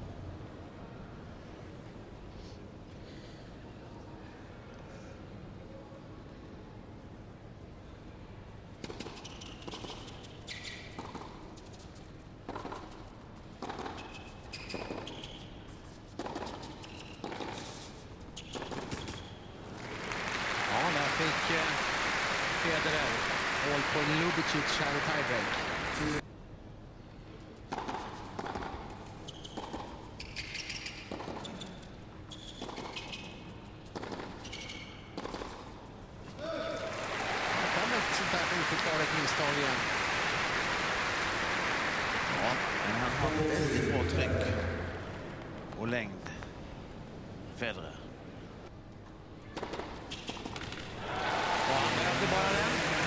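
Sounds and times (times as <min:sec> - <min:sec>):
low hall background: 0:00.0 - 0:53.0
shoes squeaking on court: 0:08.8 - 0:13.0, 0:13.7 - 0:19.5, 0:28.2 - 0:35.7, 0:49.7 - 0:50.7
rackets striking tennis ball: 0:12.5 - 0:15.2, 0:16.2 - 0:17.8, 0:18.4 - 0:19.4, 0:27.7 - 0:35.8
racket hitting tennis ball: 0:27.7 - 0:28.8, 0:33.9 - 0:35.8.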